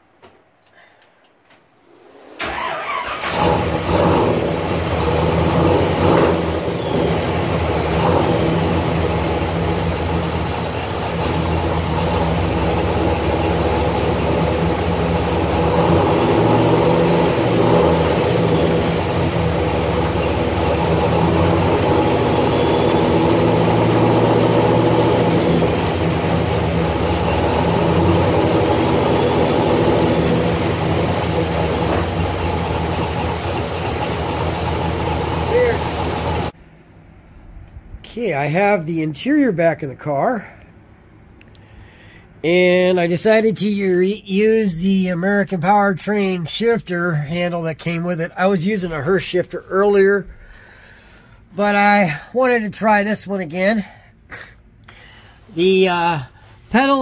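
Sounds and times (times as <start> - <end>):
car engine running: 3.1 - 36.6.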